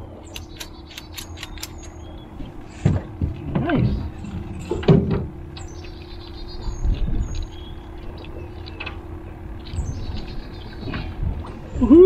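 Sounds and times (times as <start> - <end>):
birds chirping: 0.0 - 12.0
steady low hum: 0.0 - 12.0.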